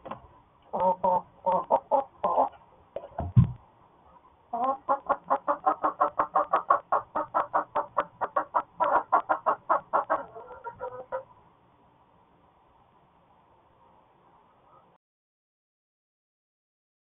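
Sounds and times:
hen clucking rapidly: 0.7s - 3.5s, 4.5s - 11.3s
short low thump: 3.2s - 3.6s.

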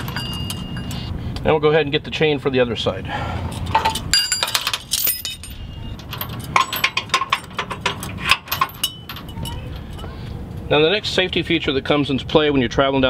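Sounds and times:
metal chain clinking: 0.0s - 1.1s, 3.5s - 10.2s.

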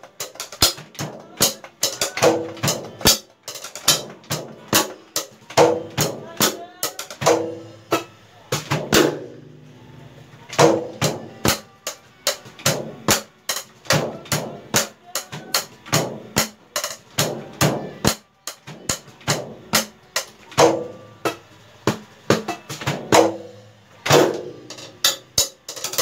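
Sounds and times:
drumsticks hitting drum pads: 0.0s - 9.5s, 10.5s - 26.0s
drum ringing: 0.0s - 9.7s, 10.5s - 26.0s.

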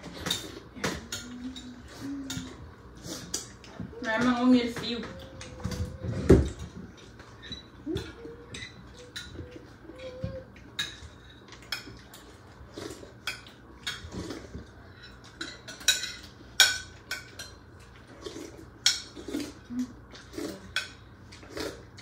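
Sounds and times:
cutlery clinking on plates: 5.7s - 12.4s, 13.1s - 19.6s.

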